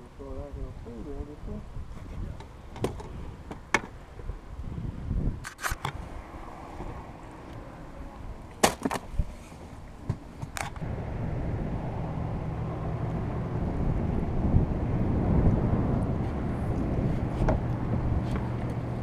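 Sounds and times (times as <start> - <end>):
steady low rumble: 10.8 - 19.0.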